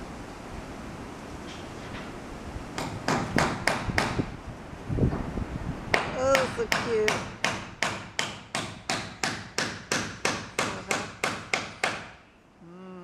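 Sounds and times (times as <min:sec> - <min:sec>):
hammer blows ringing: 0:06.0 - 0:12.2.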